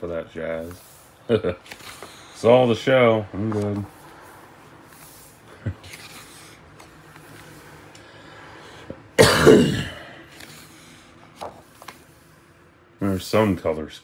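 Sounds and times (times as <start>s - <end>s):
book pages rustling: 0.5s - 2.8s, 3.4s - 8.1s, 10.2s - 12.4s
person coughing: 9.2s - 10.2s.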